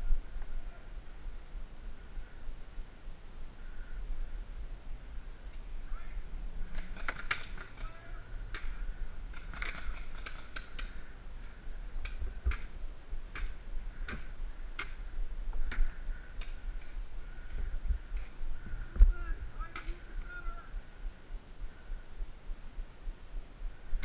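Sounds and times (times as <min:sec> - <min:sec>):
steady low rumble: 0:00.0 - 0:07.0, 0:07.6 - 0:24.0
paintball shots popping: 0:06.7 - 0:11.0.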